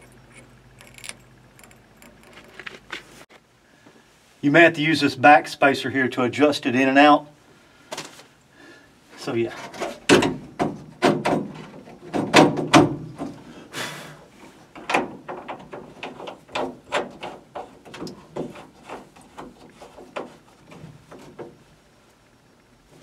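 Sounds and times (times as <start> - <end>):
clicks and rattles of parts: 0.0 - 3.1.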